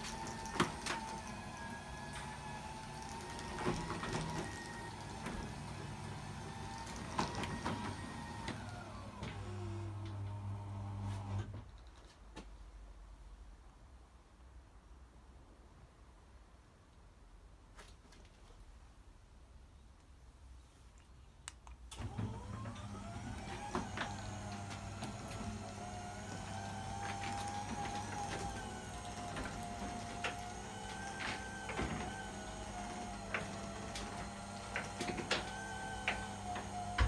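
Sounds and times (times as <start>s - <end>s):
garage door opener motor whine: 0.0s - 11.5s, 22.0s - 37.0s.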